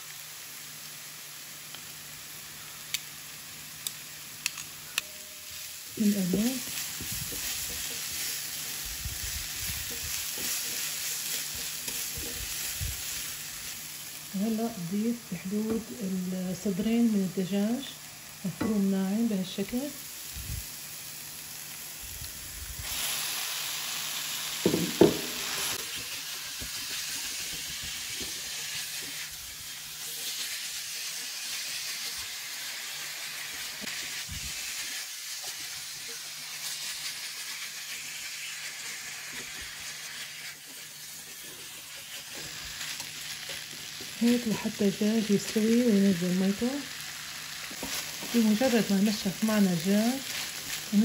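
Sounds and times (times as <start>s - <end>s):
meat sizzling in a frying pan: 0.0s - 51.0s
utensil scraping a pan: 6.3s - 13.2s.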